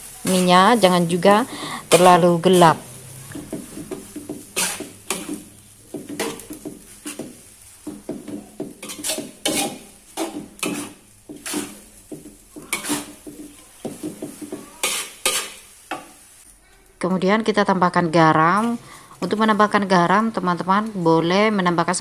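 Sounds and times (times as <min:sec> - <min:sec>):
spatula scraping a metal wok: 0:00.0 - 0:16.4.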